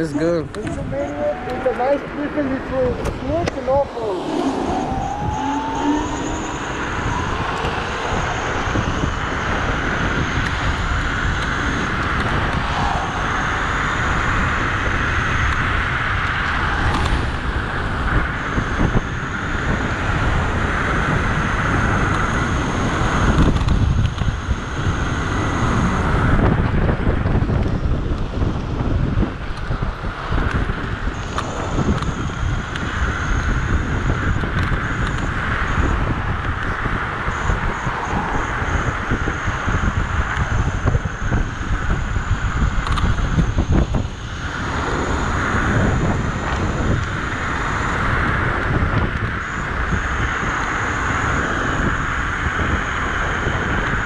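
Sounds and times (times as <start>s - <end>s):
thin high whine: 0.0s - 15.7s
scooter road noise on asphalt: 0.0s - 54.0s
wind buffeting microphone: 0.0s - 54.0s.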